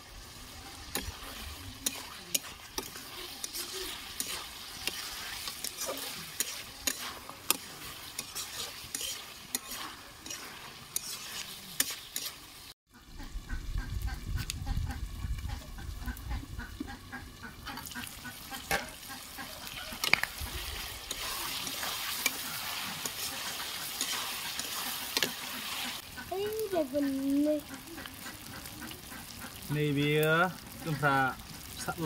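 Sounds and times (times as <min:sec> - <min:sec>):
chicken sizzling in oil: 0:00.0 - 0:32.0
spatula scraping a pan: 0:00.2 - 0:12.8, 0:17.7 - 0:26.4.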